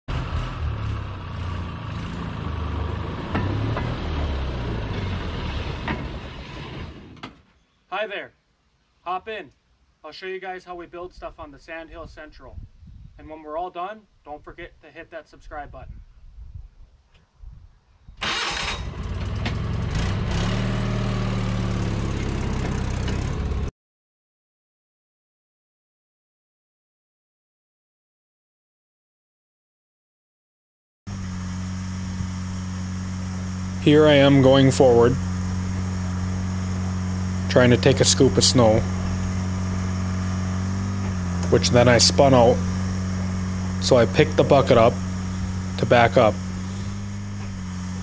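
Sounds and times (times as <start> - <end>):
rail motor car engine running: 0.1 - 6.5, 18.9 - 23.7, 31.1 - 48.0.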